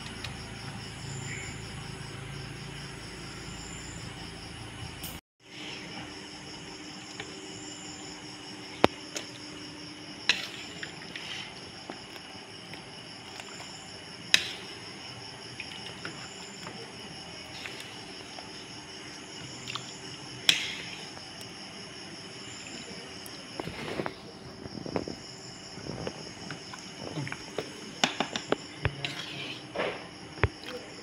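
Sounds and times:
crickets chirping: 0:00.0 - 0:31.0
scraping in wok: 0:10.2 - 0:11.8, 0:14.3 - 0:16.6, 0:20.4 - 0:21.2, 0:28.8 - 0:30.1.

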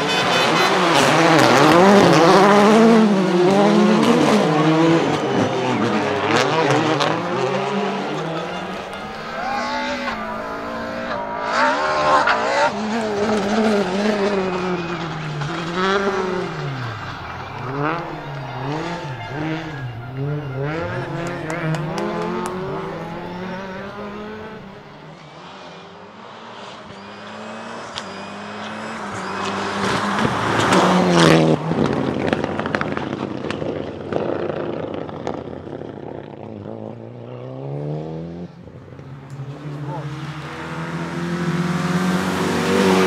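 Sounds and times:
rally car engine revving: 0:00.0 - 0:43.0
rally car passing at full throttle: 0:00.0 - 0:43.0
tyre squeal: 0:04.4 - 0:25.1, 0:26.8 - 0:30.8.

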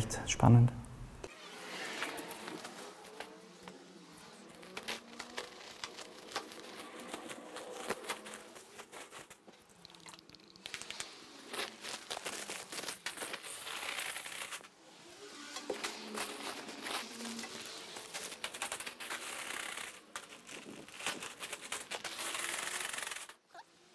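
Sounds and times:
plastic sack crinkling: 0:01.7 - 0:23.4.

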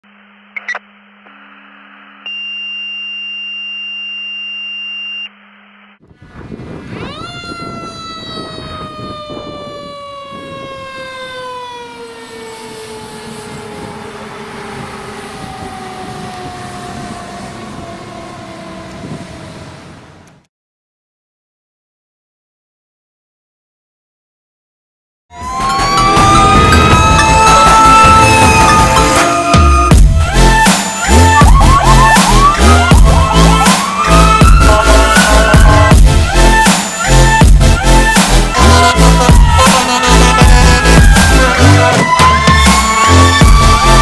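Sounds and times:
electronic tones: 0:00.4 - 0:05.4
truck engine rumble: 0:06.1 - 0:20.5, 0:25.4 - 0:44.0
fire engine siren: 0:06.3 - 0:20.4, 0:25.3 - 0:44.0.

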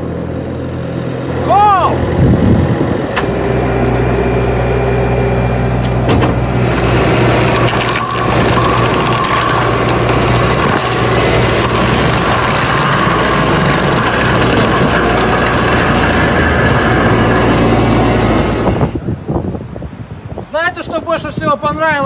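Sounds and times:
diesel engine running: 0:00.0 - 0:20.3
mulcher grinding brush: 0:05.9 - 0:19.0.

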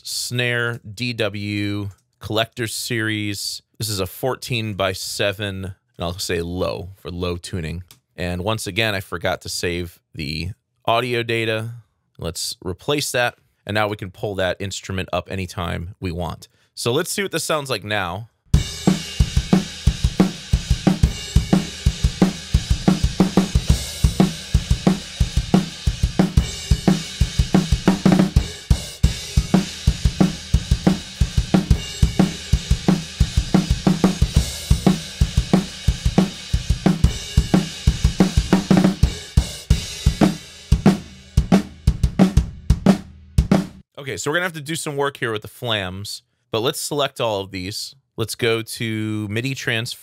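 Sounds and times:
drum kit playing a groove: 0:18.5 - 0:43.9.

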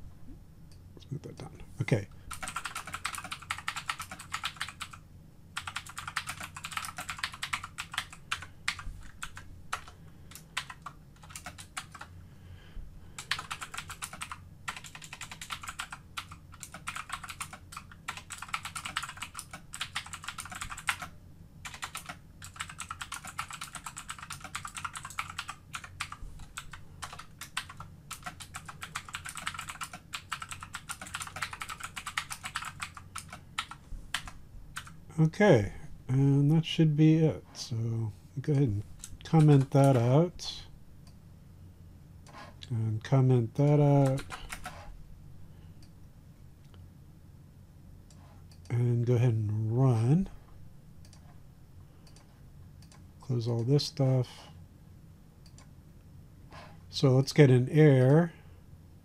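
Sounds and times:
computer keyboard typing: 0:02.3 - 0:05.0, 0:05.6 - 0:12.1, 0:13.2 - 0:35.0, 0:44.0 - 0:44.8.

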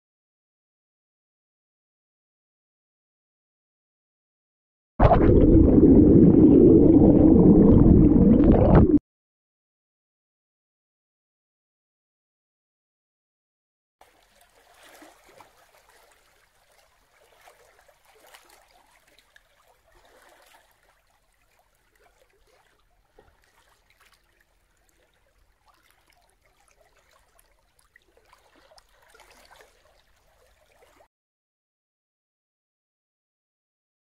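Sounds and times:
water trickling and lapping: 0:14.0 - 0:31.1.

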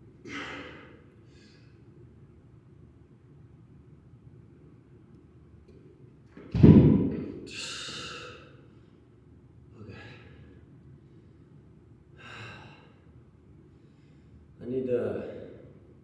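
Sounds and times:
man exhaling heavily: 0:00.3 - 0:01.7, 0:07.5 - 0:08.4, 0:12.2 - 0:12.9
heavy thump: 0:06.4 - 0:07.4.

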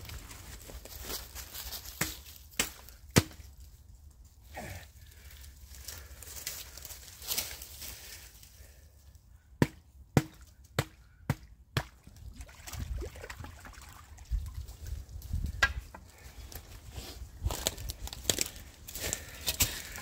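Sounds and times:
axe chopping wood: 0:02.0 - 0:03.5, 0:09.6 - 0:12.0.

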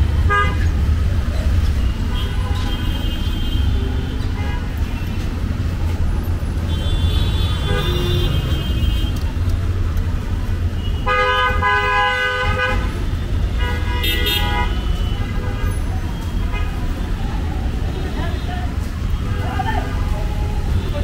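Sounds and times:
low rumble of traffic: 0:00.0 - 0:21.0
vehicle horn honking: 0:10.8 - 0:12.9, 0:13.6 - 0:15.5.

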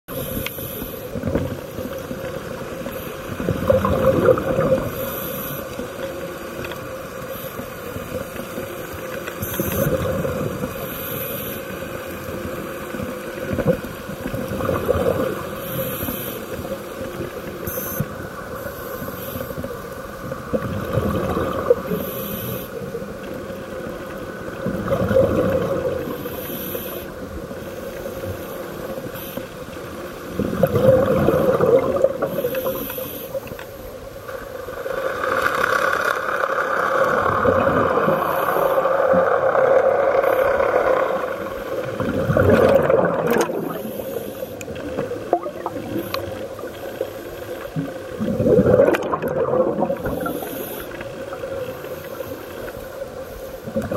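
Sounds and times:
regulator hissing inhale: 0:00.2 - 0:01.2, 0:04.9 - 0:06.0, 0:10.8 - 0:12.1, 0:15.6 - 0:16.8, 0:18.6 - 0:19.6, 0:21.9 - 0:22.8, 0:26.2 - 0:29.7, 0:32.3 - 0:33.8, 0:38.1 - 0:39.0, 0:43.7 - 0:44.8, 0:50.2 - 0:53.7.

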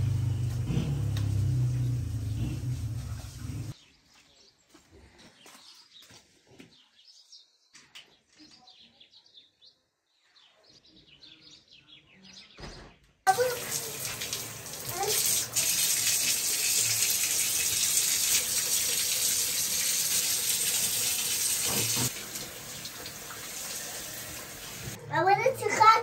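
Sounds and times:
hose water gushing into bucket: 0:13.3 - 0:25.0.

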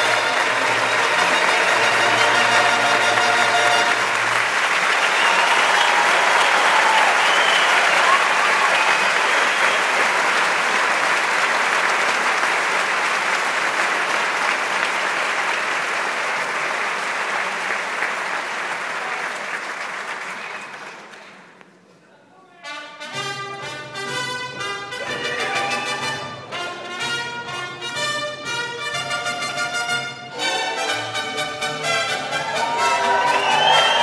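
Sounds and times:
audience applauding: 0:00.0 - 0:21.6, 0:25.0 - 0:26.4, 0:30.4 - 0:34.0.

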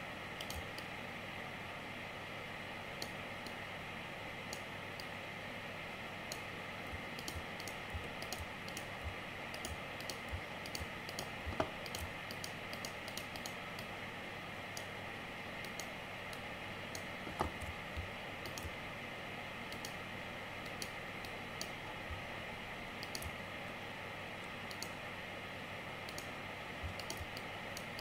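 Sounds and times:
steady background hiss: 0:00.0 - 0:28.0
computer keys clicking: 0:00.4 - 0:00.9, 0:06.3 - 0:13.9, 0:15.6 - 0:18.8, 0:19.7 - 0:20.0, 0:20.6 - 0:21.8, 0:23.0 - 0:23.4, 0:24.6 - 0:25.0, 0:26.0 - 0:28.0.

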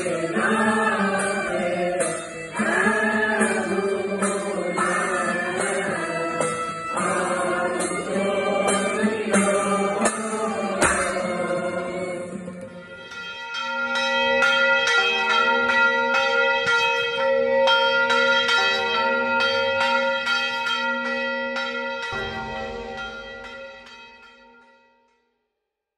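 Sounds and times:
church bells ringing a peal: 0:00.0 - 0:25.0.

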